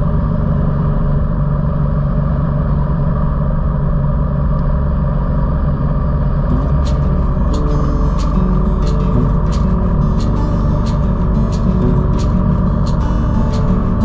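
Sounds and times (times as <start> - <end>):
road noise: 0.0 - 14.0
vehicle engine rumble: 0.0 - 14.0
music: 6.5 - 14.0.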